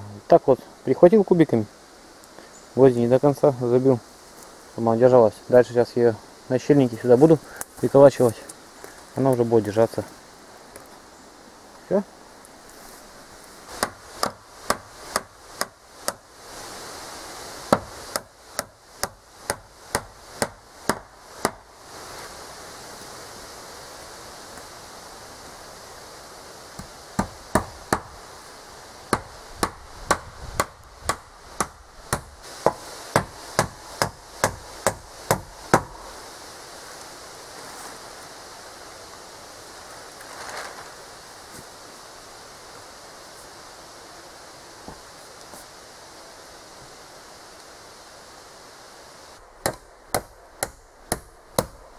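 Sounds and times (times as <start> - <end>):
hammer driving nails into wood: 13.8 - 16.2, 29.1 - 35.9.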